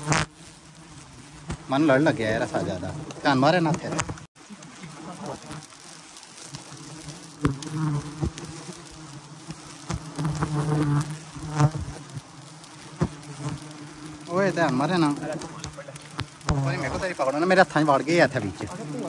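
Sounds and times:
bees buzzing: 0.0s - 19.0s.

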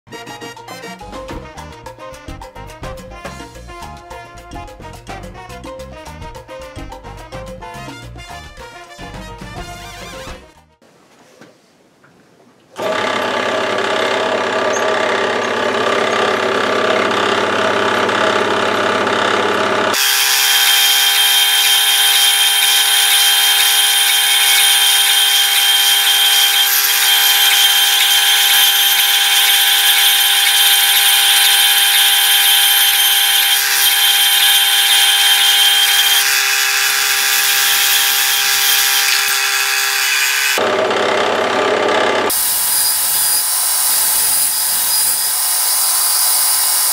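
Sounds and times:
power tool whining: 12.8s - 46.9s.

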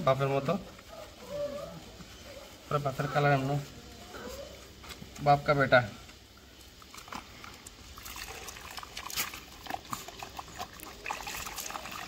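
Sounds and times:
water trickling and splashing: 6.2s - 12.0s.

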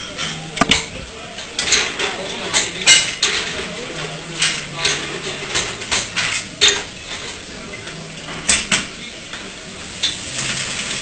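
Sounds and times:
kitchen background noise: 0.0s - 11.0s.

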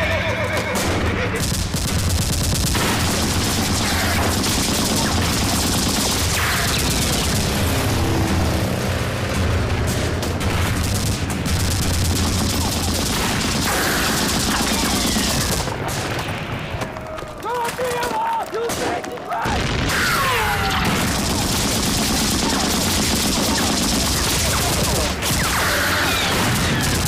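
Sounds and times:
rapid gunfire: 0.6s - 8.2s, 9.2s - 27.0s
explosions: 0.8s - 27.0s
steady low drone: 6.4s - 13.5s.

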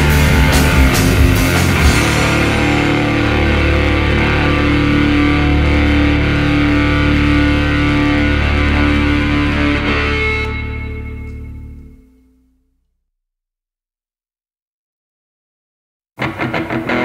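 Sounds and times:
drums and cymbals crashing: 0.0s - 3.8s
sustained low bass note: 0.0s - 12.4s
electric guitar chord ringing: 0.0s - 12.6s, 16.2s - 17.0s.

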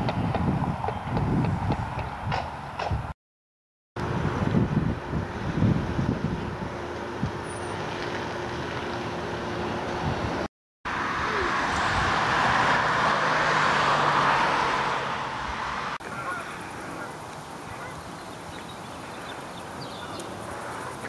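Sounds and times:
road traffic rumble: 0.0s - 3.2s, 4.0s - 21.0s
vehicle passing by: 7.5s - 21.0s.

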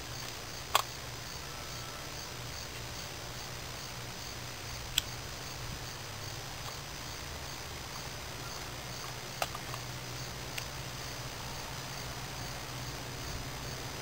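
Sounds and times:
faint pulsing high chirps: 0.0s - 5.6s, 8.2s - 9.0s
steady hiss and low hum: 0.0s - 14.0s
sharp clicks: 0.2s - 1.0s, 4.9s - 5.2s, 9.0s - 9.9s.

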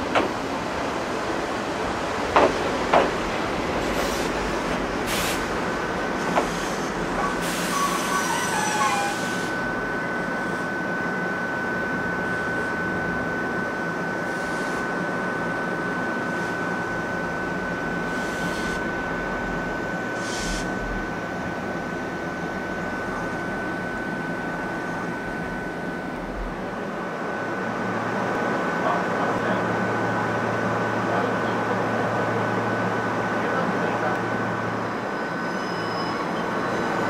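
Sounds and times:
train equipment humming: 0.0s - 37.0s
short air hisses: 5.1s - 5.5s, 6.4s - 9.5s, 20.2s - 20.7s
high-pitched whine: 6.3s - 26.8s.

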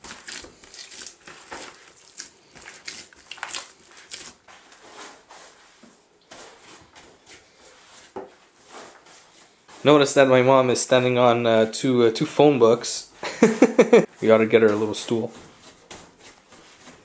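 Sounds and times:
dough squishing and slapping: 0.0s - 10.4s, 14.1s - 17.0s.

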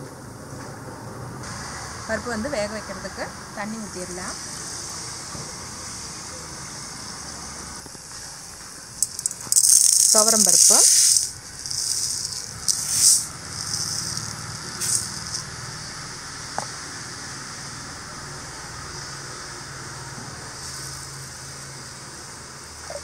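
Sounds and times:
dry lentils rattling into bowl: 9.0s - 15.6s.

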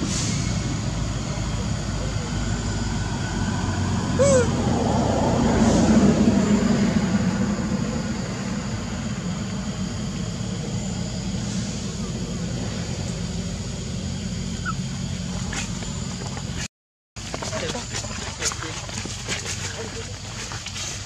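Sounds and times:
vehicle engine hum: 0.0s - 21.0s.

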